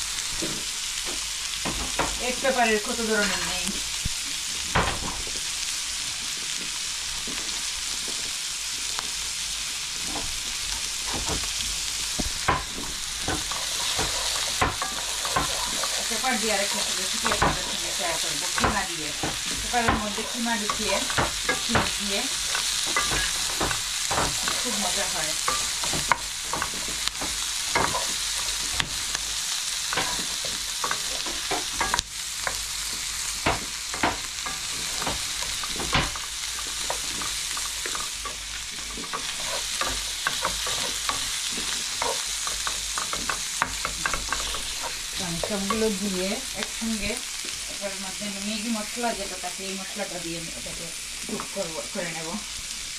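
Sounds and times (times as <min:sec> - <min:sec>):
food sizzling in a pan: 0:00.0 - 0:52.9
wooden spatula scraping a pan: 0:10.0 - 0:50.2.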